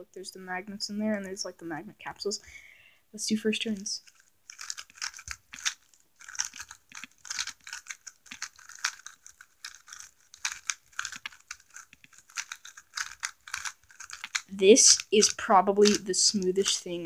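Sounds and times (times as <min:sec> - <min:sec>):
puzzle cube plastic clicks: 0:03.6 - 0:17.0.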